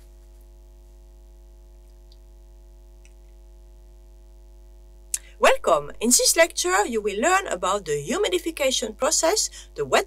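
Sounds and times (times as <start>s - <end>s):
low electrical hum: 0.0s - 10.0s
faint ticks: 1.8s - 2.3s.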